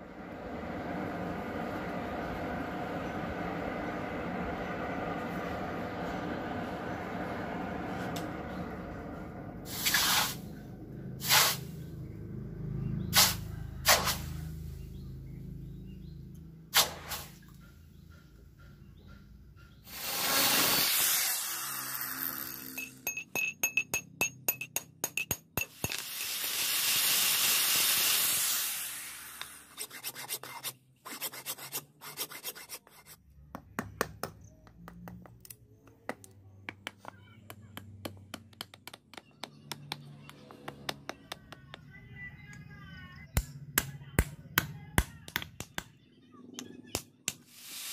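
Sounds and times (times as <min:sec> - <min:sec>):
angle grinder hissing on steel: 0:19.9 - 0:22.8, 0:25.9 - 0:29.6
hand file rasping on steel: 0:29.7 - 0:33.2.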